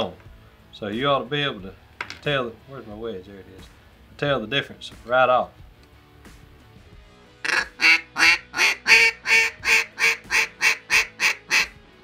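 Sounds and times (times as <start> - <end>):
duck call quacks: 7.4 - 11.8.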